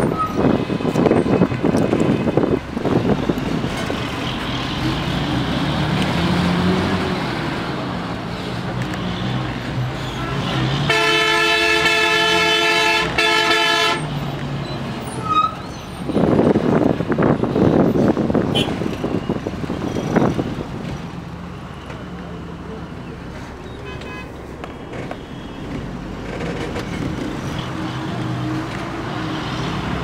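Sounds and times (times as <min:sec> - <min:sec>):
bus engine and road rumble: 0:00.0 - 0:30.0
vehicle horn blaring: 0:10.2 - 0:14.1, 0:18.5 - 0:18.8, 0:23.8 - 0:24.4.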